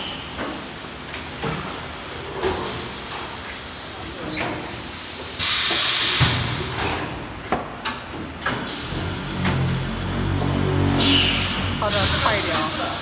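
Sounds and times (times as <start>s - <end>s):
hiss of air: 4.6s - 6.4s, 11.0s - 13.0s.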